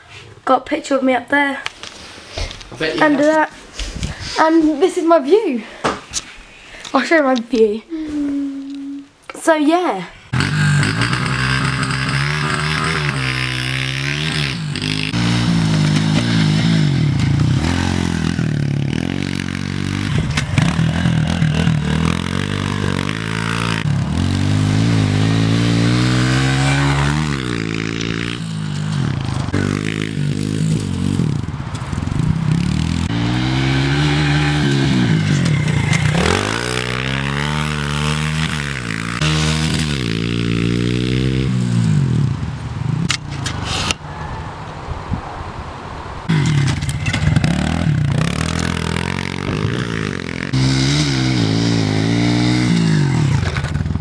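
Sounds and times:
pit bike engine revving: 0:10.3 - 0:42.4, 0:46.3 - 0:54.0.

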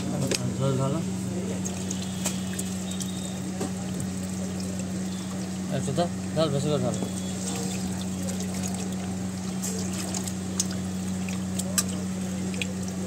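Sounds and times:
steady low hum: 0:00.0 - 0:13.0
water pouring from plastic bottle: 0:07.2 - 0:13.0.

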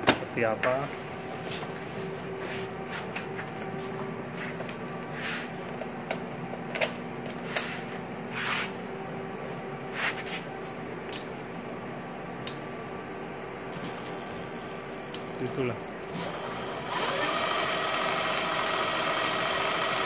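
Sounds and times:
electric motor whine: 0:16.1 - 0:20.0.

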